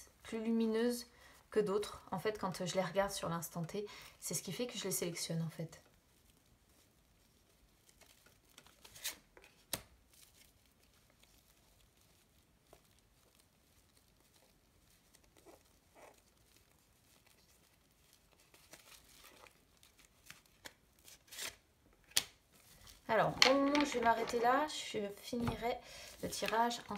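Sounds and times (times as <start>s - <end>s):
cards rustling and clicking: 18.4s - 24.5s, 25.4s - 26.9s.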